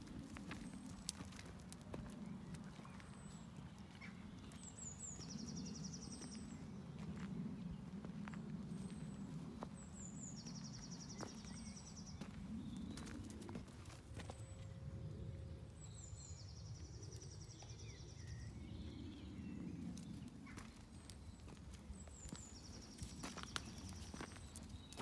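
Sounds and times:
footsteps on gravel: 0.0 - 4.7, 12.2 - 14.5, 20.4 - 25.0.

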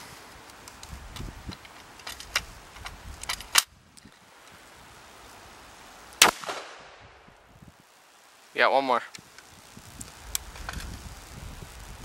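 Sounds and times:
loud gunshot: 6.2 - 7.1.

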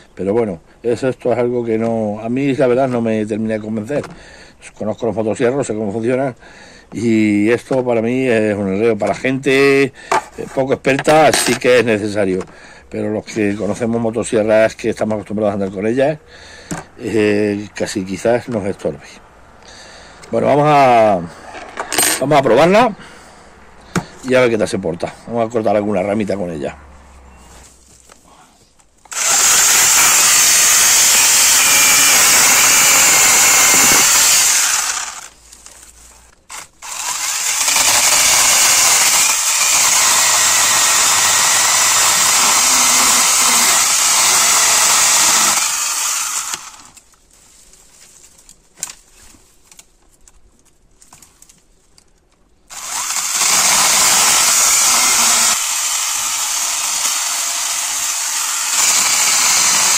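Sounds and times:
chainsaw cutting branches: 29.1 - 35.4, 36.5 - 47.0, 52.7 - 59.9.

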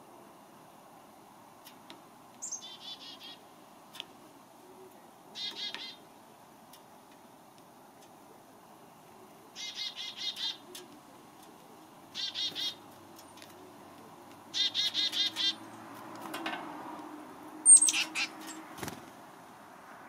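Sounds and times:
small birds calling: 2.4 - 6.3, 8.0 - 16.4, 17.2 - 19.0.

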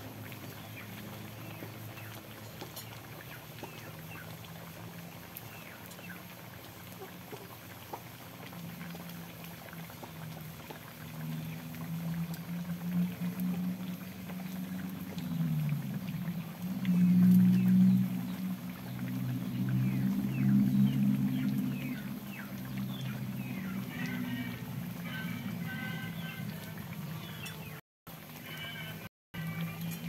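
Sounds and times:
low droning tone: 11.9 - 23.5.

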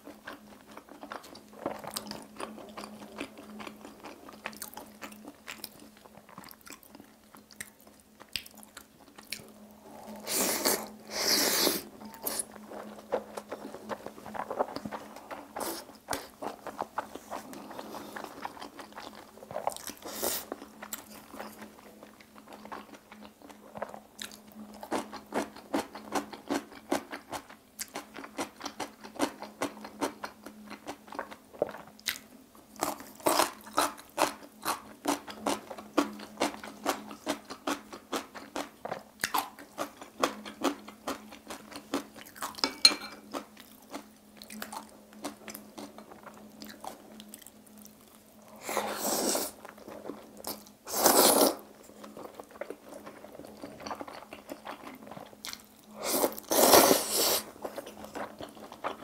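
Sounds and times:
faint low hum: 0.0 - 59.0
noodle slurps: 48.5 - 51.7, 56.0 - 57.8.

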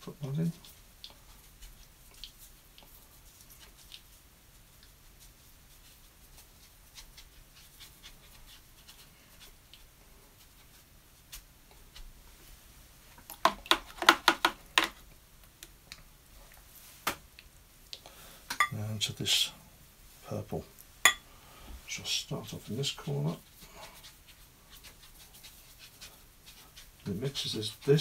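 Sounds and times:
brush strokes on paper: 0.5 - 13.0, 21.8 - 28.0.

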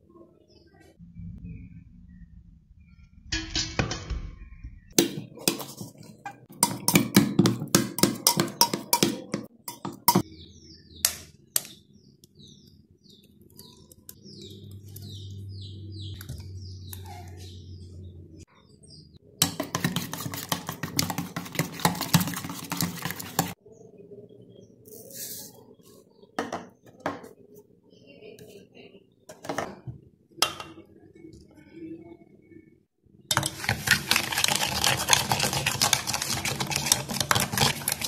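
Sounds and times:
eggs beaten with spoon: 4.9 - 10.4, 19.4 - 23.6, 33.3 - 38.0
spoon clinking against steel bowl: 6.5 - 10.2.

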